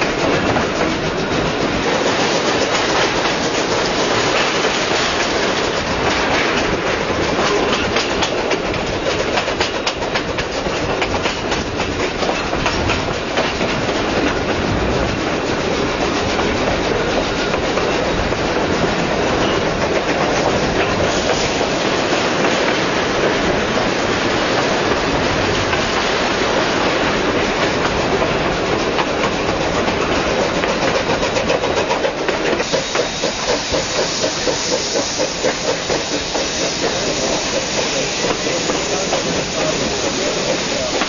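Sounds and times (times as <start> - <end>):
steam locomotive chuffing: 0.0 - 41.0
train wheels on rails: 0.0 - 41.0.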